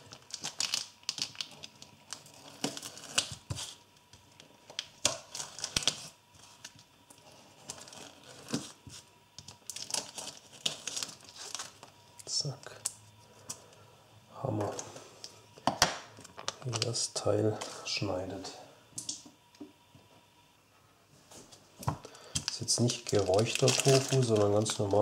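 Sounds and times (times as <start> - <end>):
plastic packaging crinkling and tearing: 0.0 - 12.4, 16.2 - 17.7, 22.1 - 25.0.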